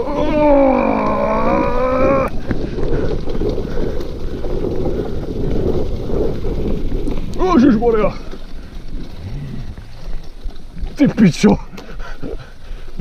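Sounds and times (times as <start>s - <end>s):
wind on microphone: 0.0s - 11.0s
tyres rumbling on trail: 0.0s - 13.0s.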